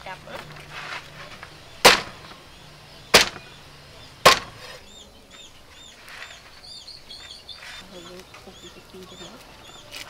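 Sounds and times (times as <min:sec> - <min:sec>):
cleaver chopping on wooden block: 0:01.8 - 0:02.3, 0:03.2 - 0:03.5, 0:04.3 - 0:04.8.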